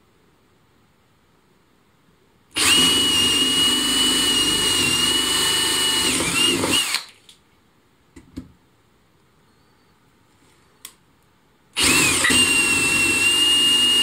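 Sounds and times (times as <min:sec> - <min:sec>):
cordless drill whining: 0:02.6 - 0:07.1, 0:11.8 - 0:14.0.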